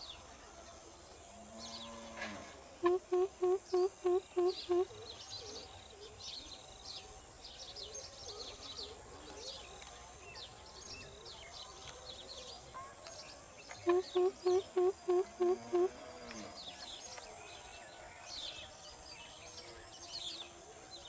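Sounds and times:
bird deep hooting: 0:02.8 - 0:05.1, 0:13.8 - 0:16.0
small birds chirping: 0:02.8 - 0:21.0.

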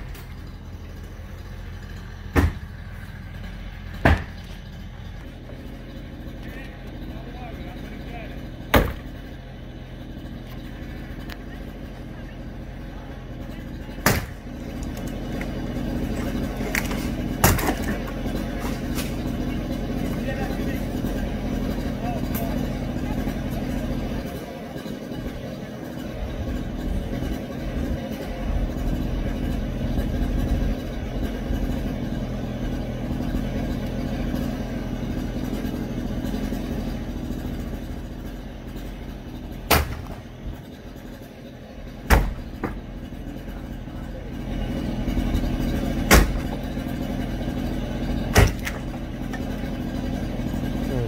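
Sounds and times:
heavy machine engine running: 0:00.0 - 0:51.0
structure breaking bangs: 0:14.0 - 0:14.6, 0:16.3 - 0:19.2, 0:39.6 - 0:40.3, 0:42.0 - 0:42.8, 0:46.0 - 0:46.7, 0:48.3 - 0:49.1.

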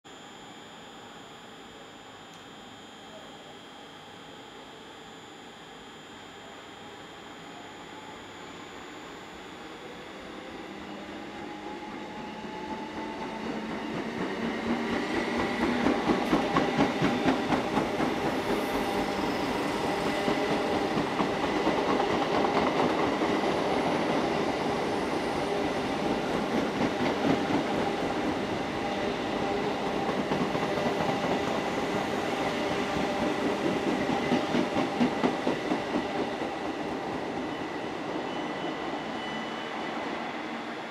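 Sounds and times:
train wheels rumbling on rails: 0:12.5 - 0:19.2.

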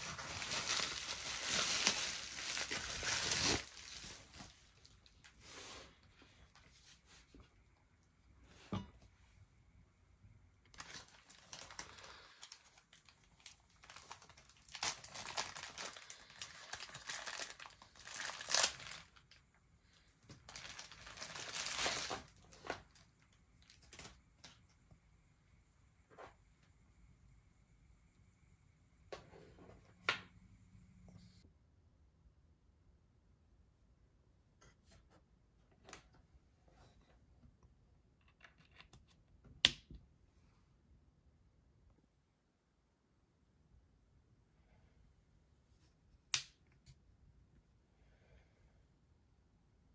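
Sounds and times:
plastic wrapping crinkling: 0:00.0 - 0:05.4, 0:10.7 - 0:19.5, 0:20.2 - 0:24.6
cable rustling: 0:00.0 - 0:07.4, 0:10.7 - 0:19.5, 0:20.2 - 0:24.8.

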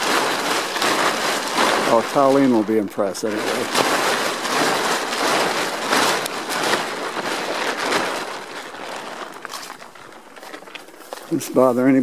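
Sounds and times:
plastic tarp crinkling: 0:00.0 - 0:12.0.

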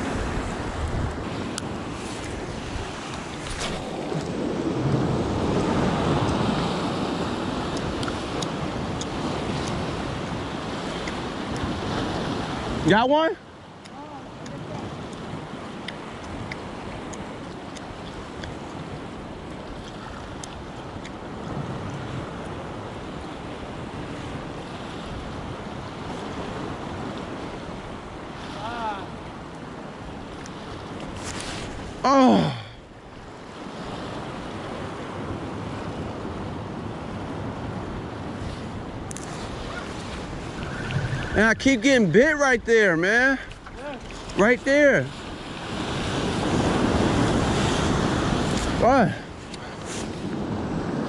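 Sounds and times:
wind buffeting microphone: 0:00.0 - 0:13.0, 0:33.2 - 0:51.0
surf washing against rocks: 0:00.0 - 0:51.0.

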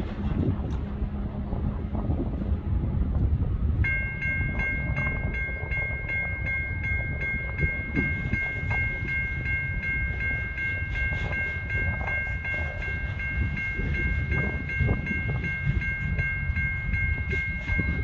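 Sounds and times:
wind rumble on microphone: 0:00.0 - 0:18.0
level crossing warning bell: 0:03.8 - 0:18.0.

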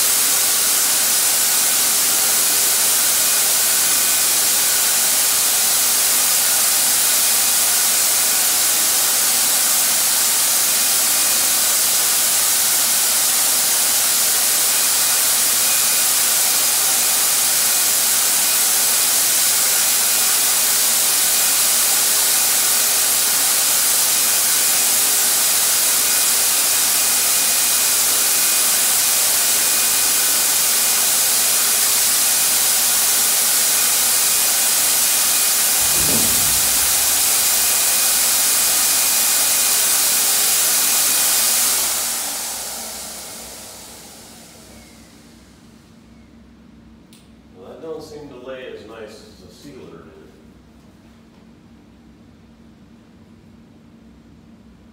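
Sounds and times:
paint sprayer air rush: 0:00.0 - 0:45.7
high turbine whine: 0:23.1 - 0:46.3.

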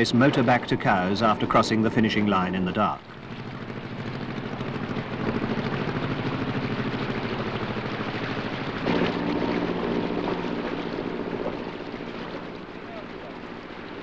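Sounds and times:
boat engine running: 0:00.0 - 0:14.0
louder engine with different pitch: 0:00.0 - 0:14.0.

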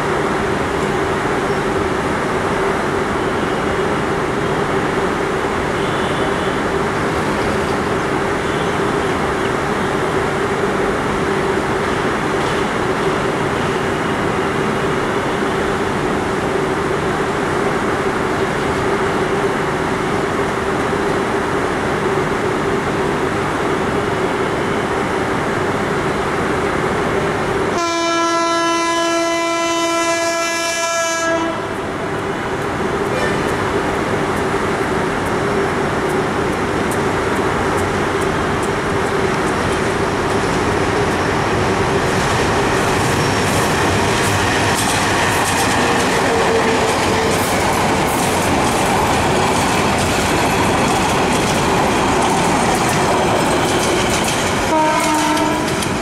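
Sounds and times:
diesel locomotive running: 0:00.0 - 0:56.0
train horn blast: 0:27.7 - 0:31.8, 0:33.1 - 0:33.6, 0:54.7 - 0:55.8.

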